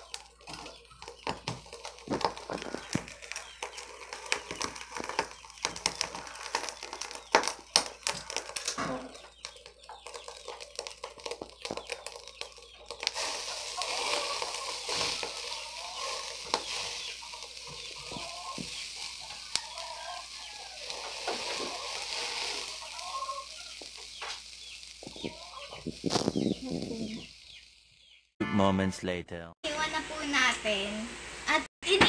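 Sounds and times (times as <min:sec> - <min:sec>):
meat sizzling on a grill: 0:00.0 - 0:28.3
steady hiss: 0:13.0 - 0:28.0.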